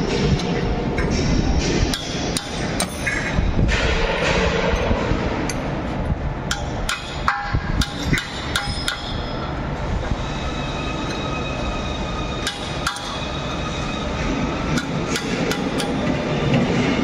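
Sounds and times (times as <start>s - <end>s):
workshop background noise: 0.0s - 17.0s
hammer striking metal: 0.4s - 5.7s, 6.5s - 9.5s, 12.4s - 13.2s, 14.7s - 16.1s.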